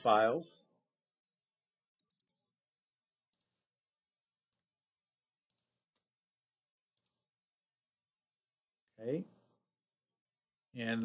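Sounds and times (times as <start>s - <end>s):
computer mouse clicks: 1.9s - 2.6s, 3.3s - 3.7s, 5.4s - 6.2s, 6.9s - 7.3s.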